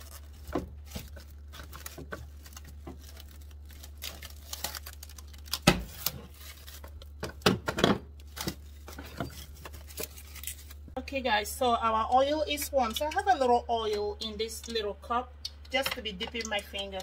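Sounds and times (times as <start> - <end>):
cling wrap crinkling: 0.0 - 7.2, 8.1 - 11.0.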